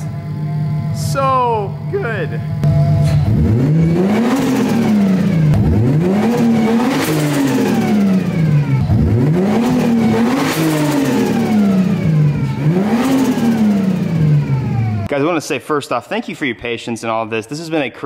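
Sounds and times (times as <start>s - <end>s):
car engine revving: 0.0s - 15.1s
turbo whistle: 2.6s - 3.4s.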